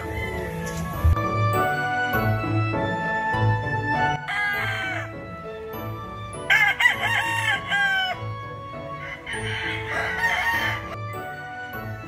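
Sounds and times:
rooster crowing: 0:00.0 - 0:00.7, 0:04.2 - 0:05.2, 0:06.5 - 0:08.3, 0:08.9 - 0:11.0
background music with steady beat: 0:00.0 - 0:12.0.

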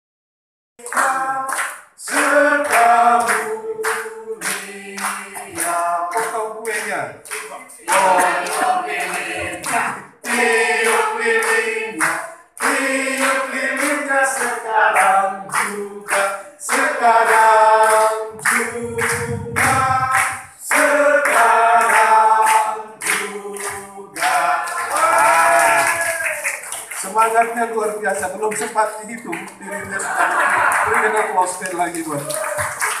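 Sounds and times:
group of people singing: 0:00.8 - 0:26.8
man singing into microphone: 0:14.0 - 0:24.8.

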